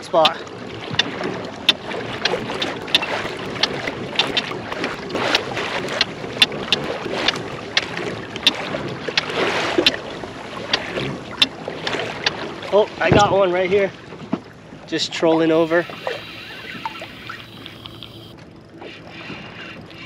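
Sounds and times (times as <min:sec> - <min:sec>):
water lapping against hull: 0:00.0 - 0:20.0
sharp clicks and knocks: 0:00.2 - 0:04.6, 0:05.3 - 0:10.0, 0:10.7 - 0:12.4.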